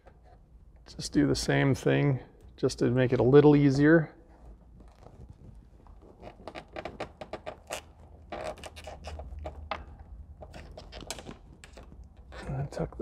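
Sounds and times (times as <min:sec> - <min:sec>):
scratches and clicks of plastic: 0:04.3 - 0:12.6.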